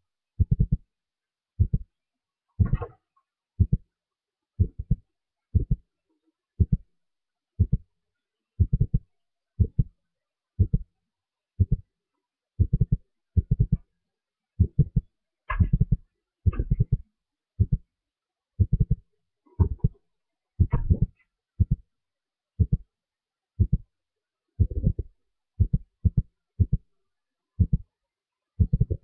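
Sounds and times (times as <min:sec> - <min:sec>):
low muffled thumps: 0:14.6 - 0:17.0, 0:20.6 - 0:21.8.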